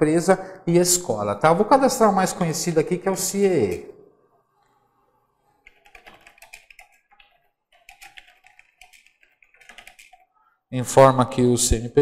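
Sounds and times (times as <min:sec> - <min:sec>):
keyboard typing: 0:05.5 - 0:10.4.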